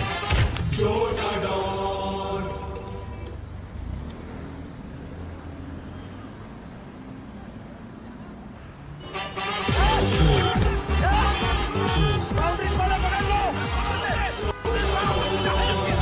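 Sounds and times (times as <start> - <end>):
road traffic rumble: 0.0 - 16.0
faint bird chirps: 5.6 - 9.1.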